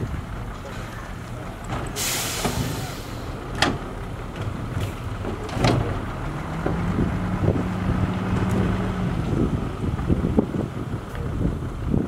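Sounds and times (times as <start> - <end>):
truck diesel engine running: 0.0 - 12.0
dirt sliding out of truck bed: 1.7 - 3.6.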